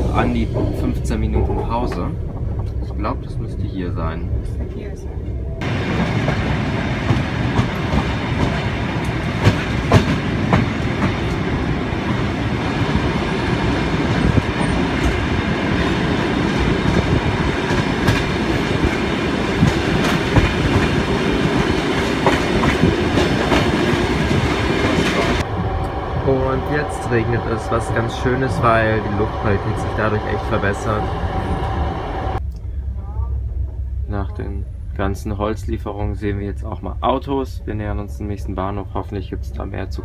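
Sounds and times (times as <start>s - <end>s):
train wheels rumbling on rails: 0.0s - 40.0s
wheels clacking over rail joints: 5.6s - 26.0s.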